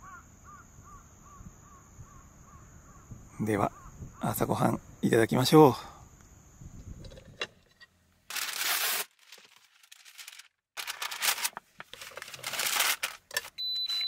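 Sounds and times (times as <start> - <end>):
baking paper crinkling: 8.3 - 13.6.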